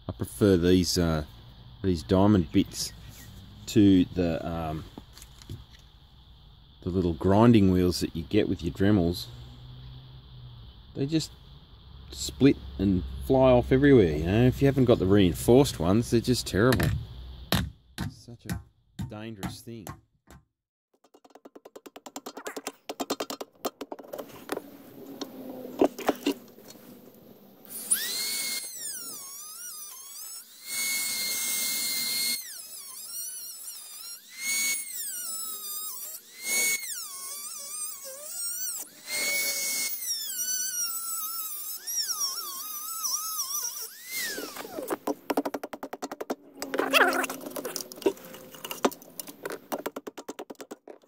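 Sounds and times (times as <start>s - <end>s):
rotary tool grinding metal: 27.6s - 45.0s, 46.2s - 49.6s.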